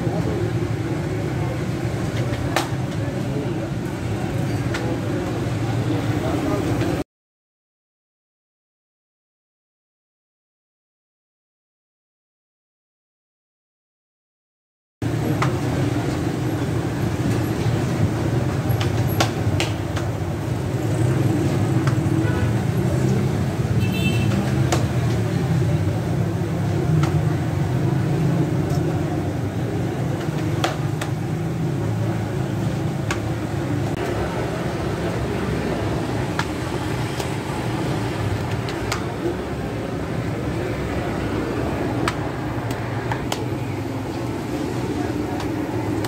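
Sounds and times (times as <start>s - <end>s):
shop noise: 0.0s - 7.0s, 15.0s - 46.0s
dough slaps and clicks: 18.7s - 20.2s, 24.3s - 25.2s, 27.0s - 27.3s, 30.2s - 31.3s.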